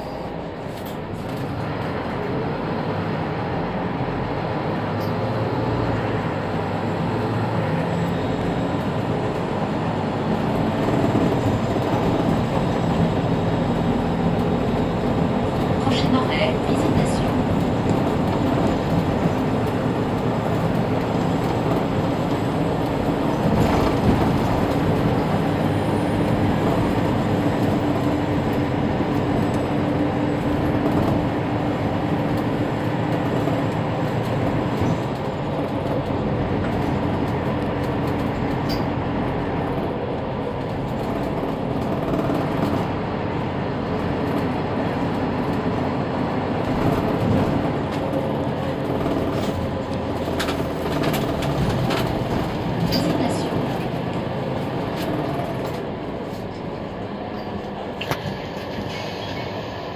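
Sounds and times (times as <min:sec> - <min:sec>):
bus engine drone: 0:00.0 - 0:59.9
road noise: 0:00.0 - 0:59.9.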